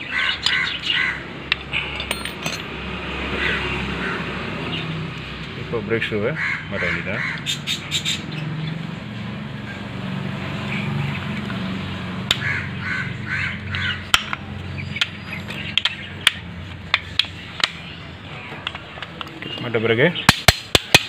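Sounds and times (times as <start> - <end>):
crows cawing: 0.0 - 1.9, 3.3 - 4.4, 6.3 - 7.8, 12.4 - 14.3
metallic clicks of brake parts: 13.7 - 17.8.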